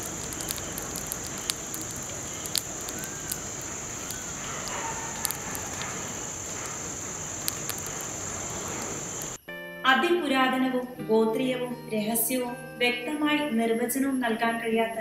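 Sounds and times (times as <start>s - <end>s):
sharp crackles and ticks: 0.0s - 9.4s
high-pitched insect drone: 0.0s - 9.5s.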